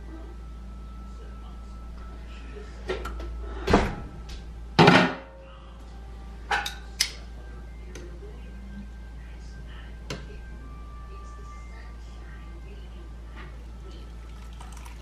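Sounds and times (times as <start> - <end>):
metal tongs clicking on pan: 6.6 - 7.2.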